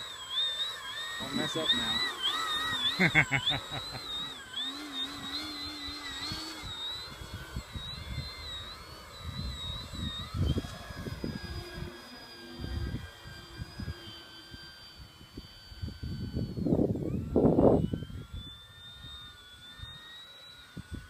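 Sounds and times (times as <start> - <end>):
model plane motor whining: 0.0 - 21.0
wind buffeting microphone: 6.2 - 12.0, 12.6 - 18.5.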